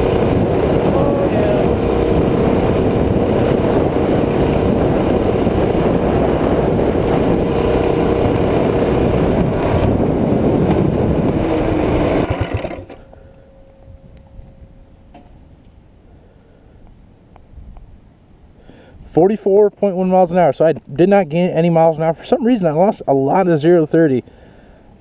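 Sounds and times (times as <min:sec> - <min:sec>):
small engine running flat out: 0:00.0 - 0:13.2
wind rushing past: 0:00.0 - 0:15.6.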